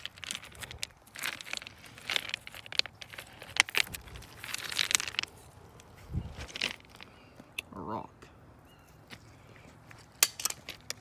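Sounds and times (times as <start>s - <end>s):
hand rummaging through stones: 0.0s - 7.2s.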